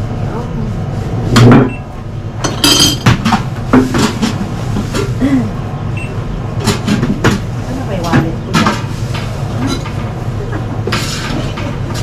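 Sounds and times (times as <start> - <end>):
plates and utensils clinking: 2.4 - 5.2, 8.0 - 12.0.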